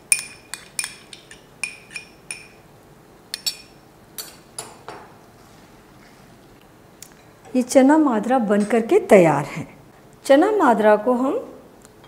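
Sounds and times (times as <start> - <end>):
spoon clinking against glass bowl: 0.0 - 2.6, 3.3 - 4.4.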